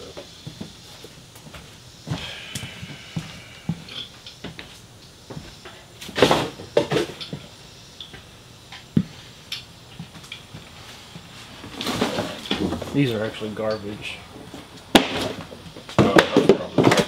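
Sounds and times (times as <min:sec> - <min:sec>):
objects knocking and clunking: 0:05.3 - 0:07.5, 0:11.6 - 0:13.1, 0:14.5 - 0:17.0.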